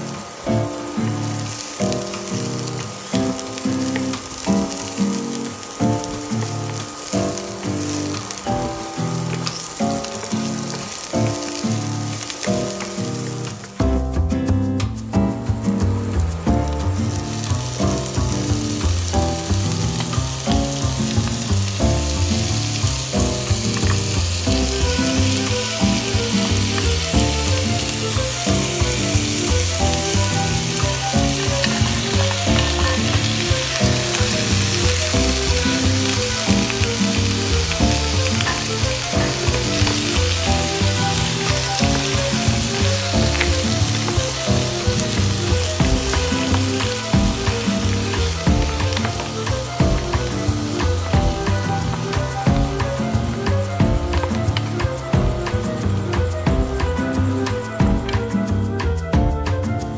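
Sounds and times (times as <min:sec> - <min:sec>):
seafood sizzling in oil: 0:00.0 - 0:14.2, 0:14.8 - 0:58.6
wooden spoon stirring: 0:16.0 - 0:58.5.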